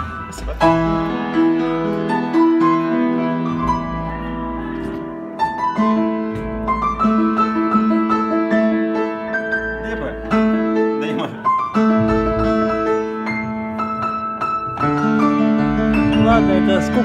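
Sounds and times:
grand piano chords and notes: 0:00.0 - 0:17.0.

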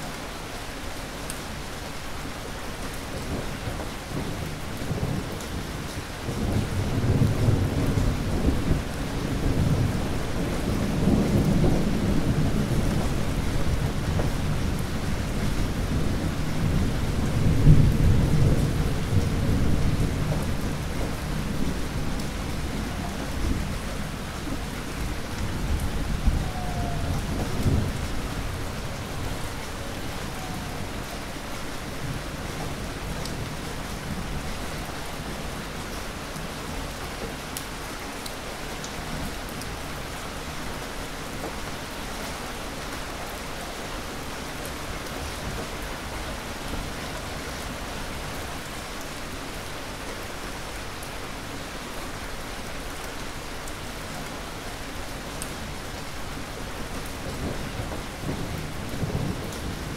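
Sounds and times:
heavy rain falling: 0:00.0 - 0:59.9
low rumble of thunder: 0:03.1 - 0:37.8, 0:55.6 - 0:59.9.

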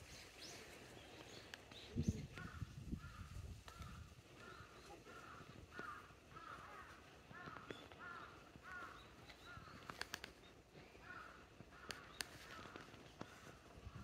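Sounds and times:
crow cawing: 0:02.4 - 0:10.2, 0:10.8 - 0:13.6
sharp clicks: 0:09.8 - 0:10.5, 0:11.8 - 0:13.3.

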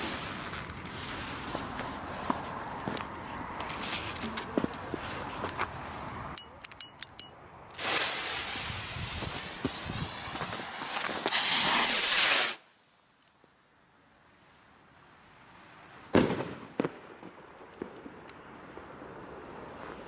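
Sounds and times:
sharp clicks: 0:06.3 - 0:07.3
firework fuse hissing: 0:07.7 - 0:13.0.

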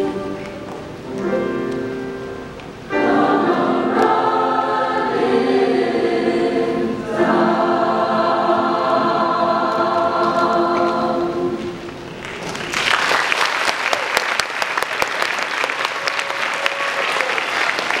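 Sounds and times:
choir singing: 0:00.0 - 0:00.6, 0:02.9 - 0:12.0
audience applause: 0:12.1 - 0:18.0.

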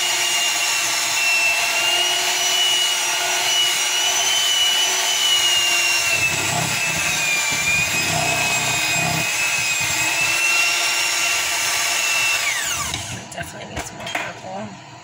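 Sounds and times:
electric hand mixer whining: 0:00.0 - 0:13.4.

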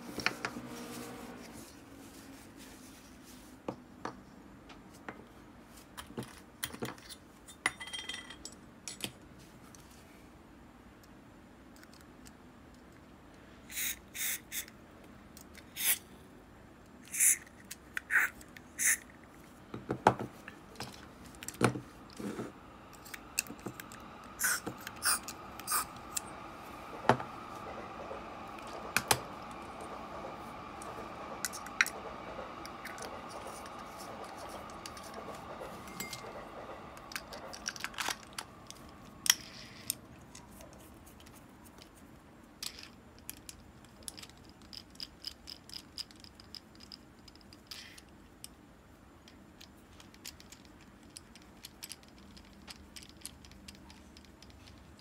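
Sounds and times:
aerosol spray hissing: 0:24.4 - 0:26.8.

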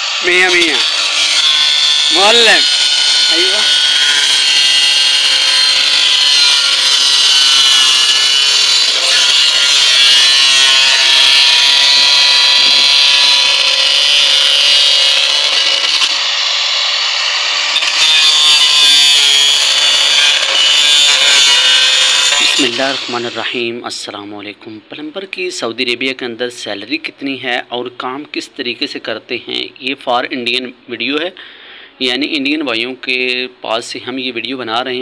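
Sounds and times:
angle grinder cutting plastic pipe: 0:00.0 - 0:23.6.

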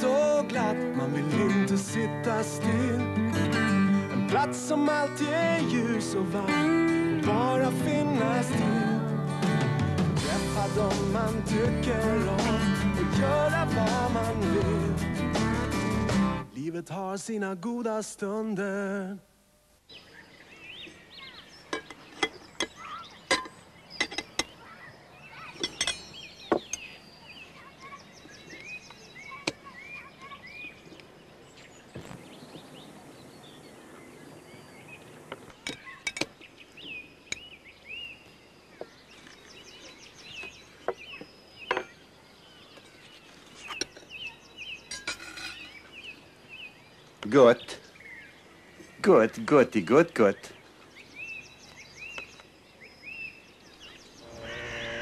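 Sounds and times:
birds chirping: 0:00.0 - 0:19.1, 0:19.8 - 0:55.0
cutlery and china clinking: 0:21.7 - 0:24.6, 0:25.6 - 0:26.9, 0:35.6 - 0:36.4, 0:41.7 - 0:42.0, 0:44.9 - 0:45.9.

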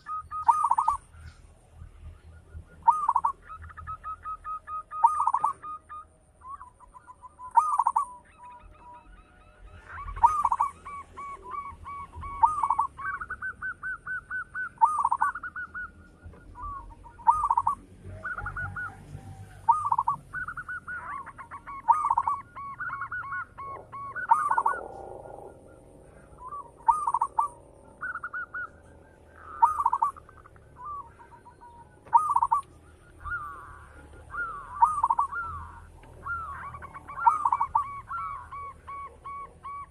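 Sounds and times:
dove cooing: 0:00.0 - 0:39.9.

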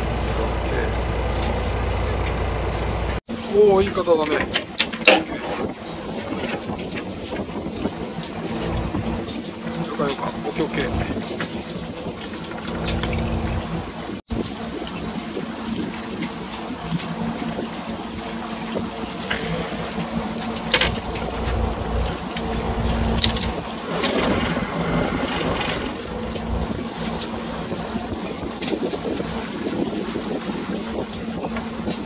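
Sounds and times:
steady low hum: 0:00.0 - 0:03.2, 0:08.2 - 0:11.2, 0:12.6 - 0:14.1, 0:18.9 - 0:27.9
water splashing against boat: 0:00.0 - 0:32.0
wind rumble on microphone: 0:00.0 - 0:32.0.

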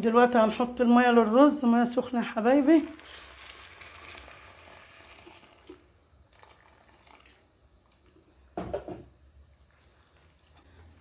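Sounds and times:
hot water poured into a pot: 0:02.4 - 0:08.2.

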